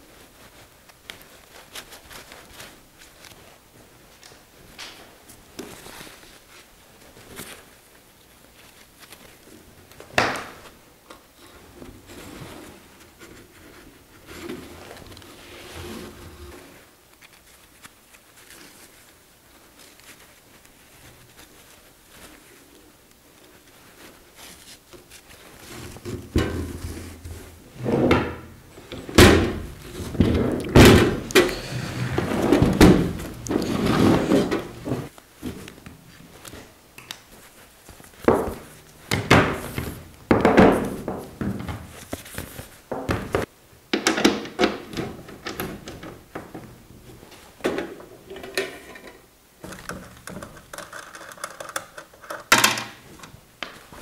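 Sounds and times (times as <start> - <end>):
strap and cable rustling: 0.0 - 27.8, 28.7 - 43.5, 44.8 - 54.0
knocks and thunks on workbench: 40.3 - 41.8, 42.9 - 45.2.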